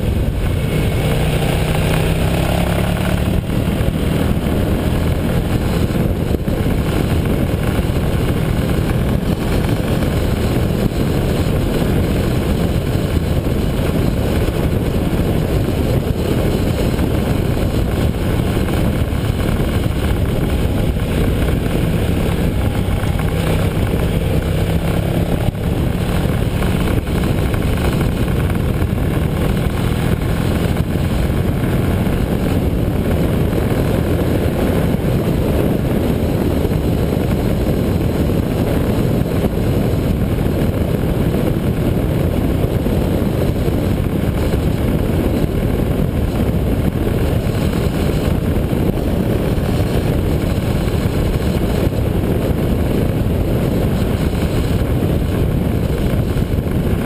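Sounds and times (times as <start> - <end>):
motorcycle engine running: 0.0 - 57.0
wind rumble on microphone: 0.0 - 57.0.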